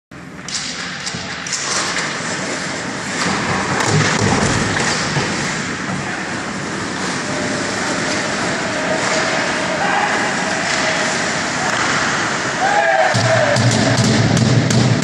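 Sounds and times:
hockey stick clicks: 0:00.4 - 0:02.4, 0:10.5 - 0:12.1
ice rink hiss: 0:00.8 - 0:15.0.

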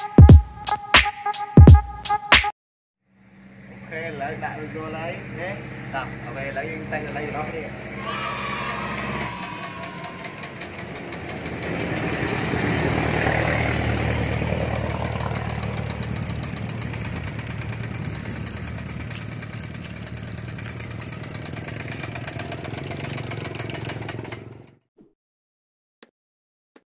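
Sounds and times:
small engine rattling: 0:07.0 - 0:24.8.

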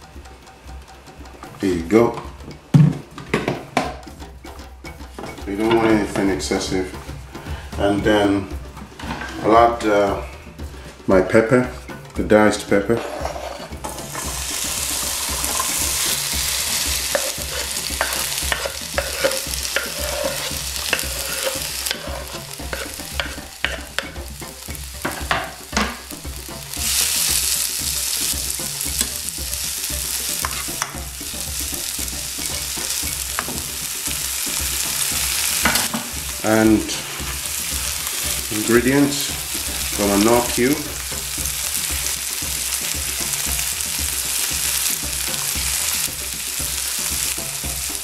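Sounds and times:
utensil scraping and tapping pan: 0:00.0 - 0:09.6, 0:11.9 - 0:47.4
vegetables sizzling in frying pan: 0:13.0 - 0:48.0.

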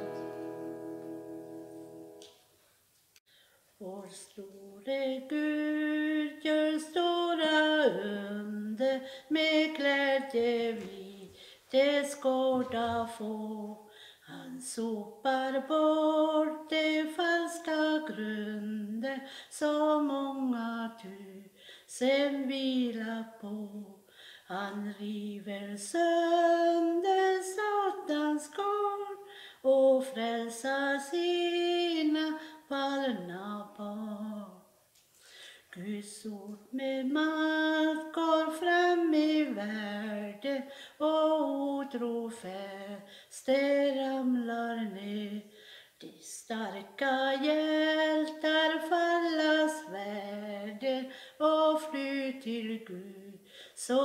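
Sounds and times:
woman singing a hymn: 0:03.8 - 0:34.7, 0:35.7 - 0:54.0.

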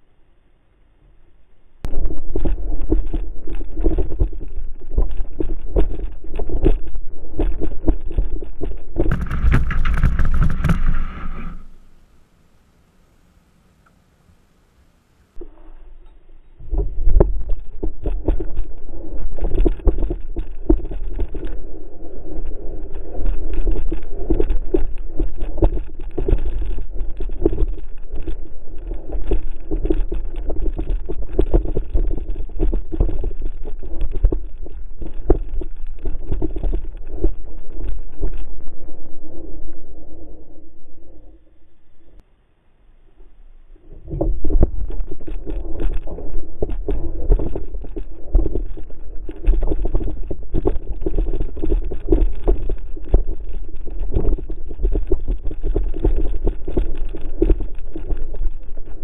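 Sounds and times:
sled dragged over grass: 0:02.0 - 0:12.2, 0:43.8 - 0:59.0.

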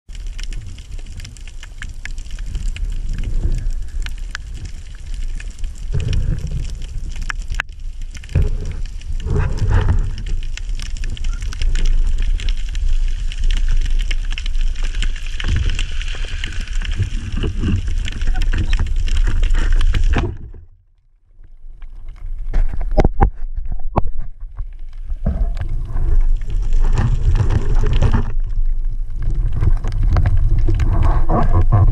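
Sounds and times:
crackle of fine clicks: 0:00.1 - 0:31.9
muffled underwater rush: 0:22.0 - 0:31.9.

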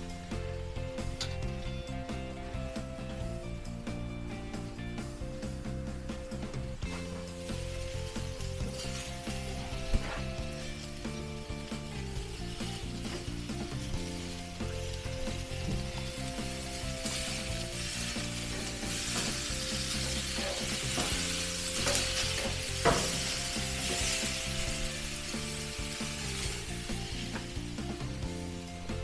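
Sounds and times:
soft background music: 0:00.0 - 0:29.0
steaks sizzling on a grill: 0:00.0 - 0:29.0
metal clacking on grate: 0:18.4 - 0:24.4.

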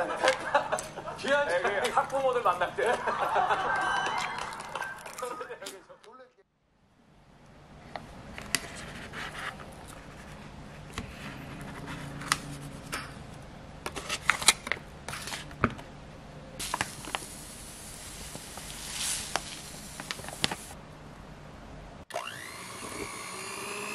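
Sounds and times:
paper wrapper crinkling: 0:04.1 - 0:05.8, 0:16.6 - 0:17.4, 0:18.0 - 0:20.8.

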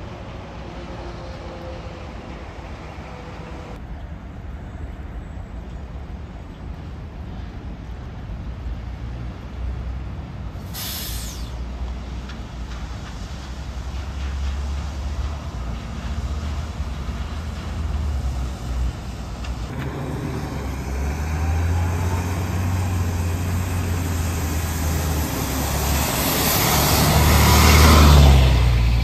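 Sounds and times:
bus passing by: 0:00.0 - 0:29.0
low diesel rumble: 0:10.2 - 0:29.0.

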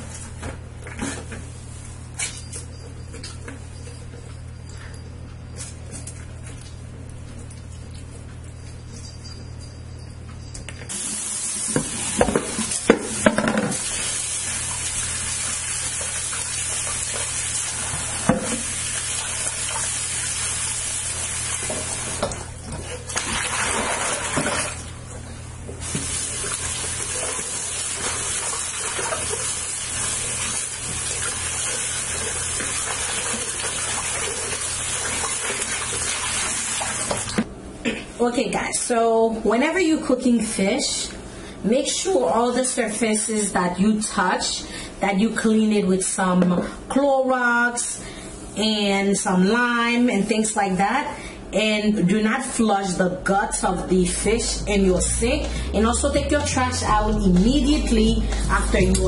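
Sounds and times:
faucet running into bowl of water: 0:10.9 - 0:24.9, 0:25.8 - 0:37.4.

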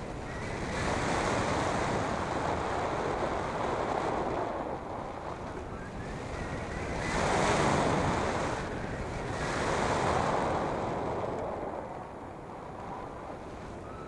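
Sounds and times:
wind noise from airflow: 0:00.0 - 0:14.0.

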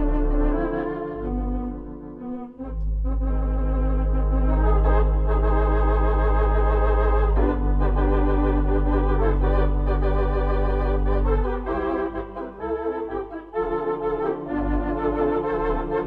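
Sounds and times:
organ chords with tremolo: 0:00.0 - 0:16.0
held low bass note: 0:01.2 - 0:11.7.

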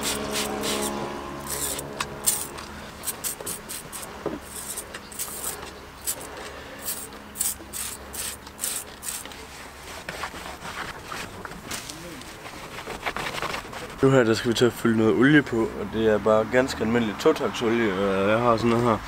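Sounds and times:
rubbing on rubber tyre: 0:00.0 - 0:14.4
spray bottle hissing squirts: 0:01.5 - 0:09.2.

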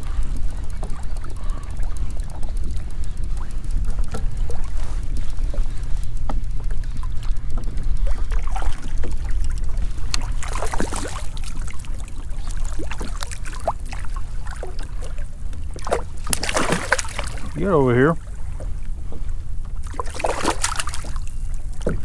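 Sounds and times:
low rumble: 0:00.0 - 0:22.0
water splashing: 0:08.0 - 0:17.8, 0:19.8 - 0:22.0.

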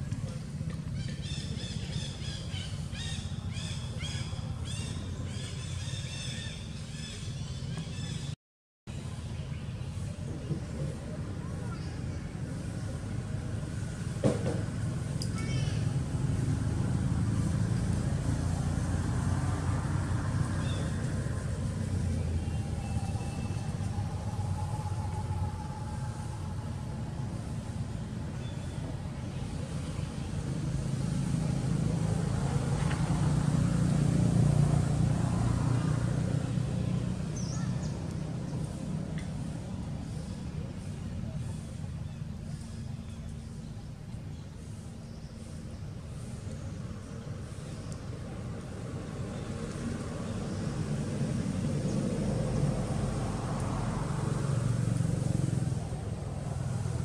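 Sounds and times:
low rumbling background noise: 0:00.0 - 0:57.0
steady low rumble: 0:19.9 - 0:32.6.

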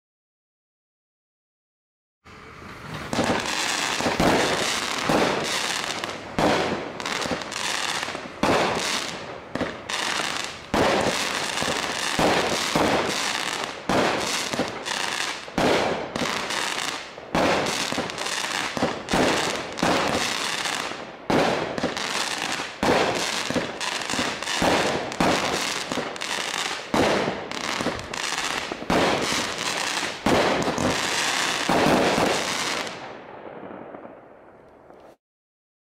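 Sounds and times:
fireworks shots and bursts: 0:02.4 - 0:35.1.

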